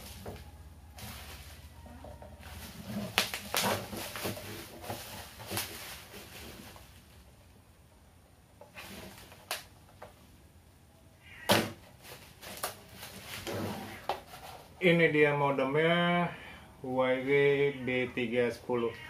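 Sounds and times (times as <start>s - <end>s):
cardboard packaging rustling: 0.0s - 7.3s, 11.9s - 14.8s.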